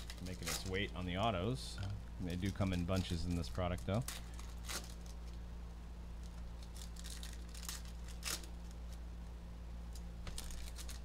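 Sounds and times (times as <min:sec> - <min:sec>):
low electrical hum: 0:00.0 - 0:11.0
trading cards flicking: 0:09.9 - 0:11.0.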